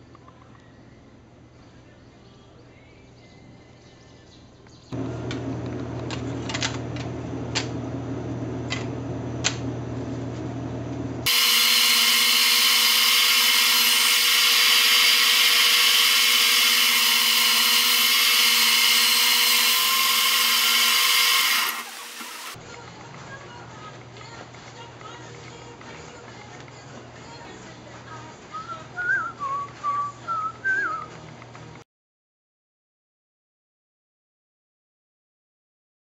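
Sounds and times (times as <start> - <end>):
steady low hum: 5.0 - 11.2
band saw cutting plywood: 11.2 - 22.6.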